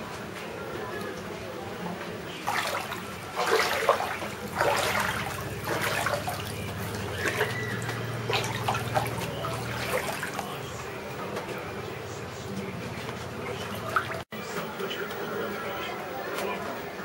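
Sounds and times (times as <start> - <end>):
floodwater sloshing and splashing: 2.3 - 10.9, 13.2 - 14.3.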